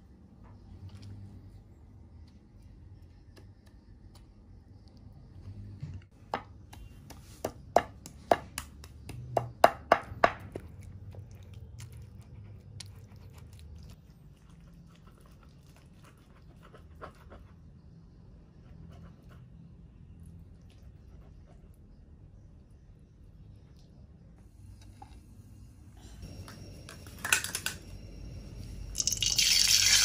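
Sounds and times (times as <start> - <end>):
wooden pestle knocking in mortar: 6.3 - 10.6
pestle crushing food: 7.5 - 11.7.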